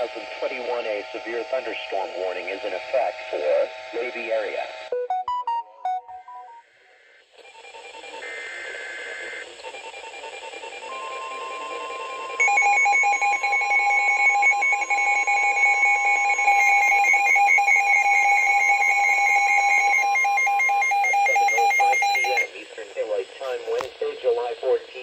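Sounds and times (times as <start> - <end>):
steady warning alarm tone: 0.0 - 22.5
screeching two-tone data burst: 7.5 - 22.5
loud pulsing alarm beeps: 10.8 - 22.5.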